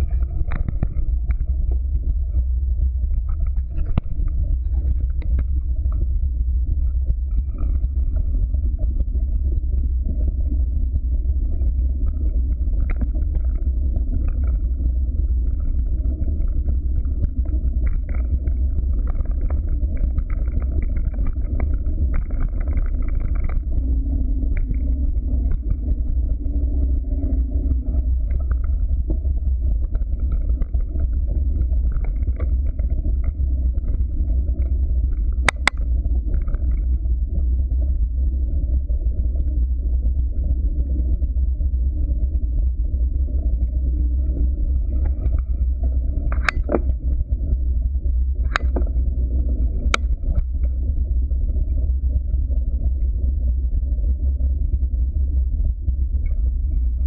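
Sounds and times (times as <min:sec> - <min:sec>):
wind rumble: 0:00.0 - 0:57.0.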